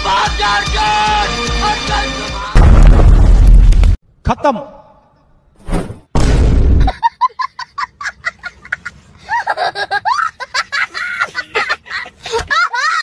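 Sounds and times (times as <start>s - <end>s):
person laughing: 6.8s - 13.0s.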